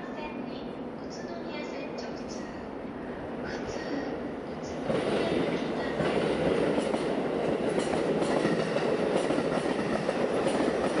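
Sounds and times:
train wheels rumbling on rail: 0.0 - 11.0
wheels clacking over rail joints: 4.9 - 11.0.

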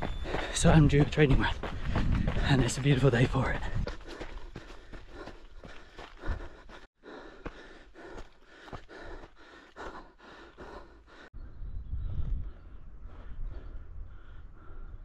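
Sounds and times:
running footfalls: 0.0 - 11.2
runner breathing hard: 0.0 - 15.0.

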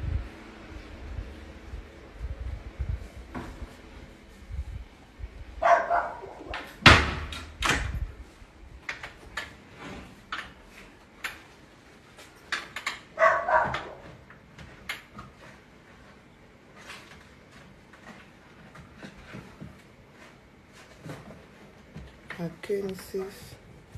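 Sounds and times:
dog barking: 5.6 - 6.6, 13.2 - 14.1.

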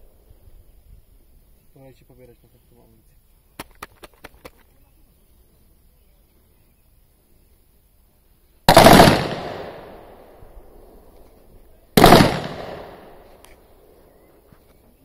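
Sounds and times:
rifle shots: 8.7 - 10.4, 12.0 - 13.3.

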